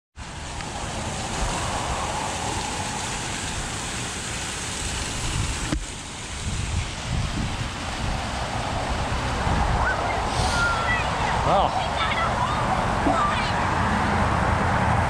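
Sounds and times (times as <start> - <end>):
wind on microphone: 5.1 - 11.7.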